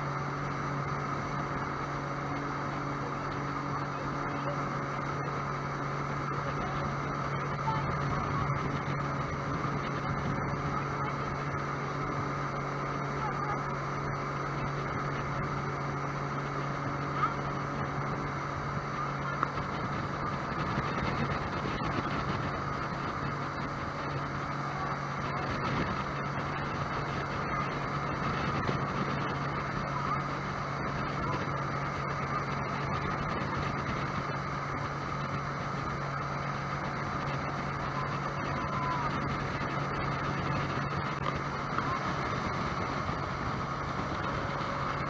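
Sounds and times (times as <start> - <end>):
boat engine humming: 0.0 - 45.0
rush of water and air: 0.0 - 45.0.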